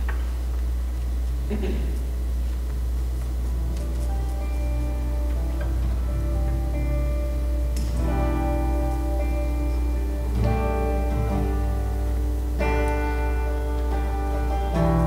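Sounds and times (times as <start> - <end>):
steady low hum: 0.0 - 15.0
guitars ringing sustained chords: 1.0 - 15.0.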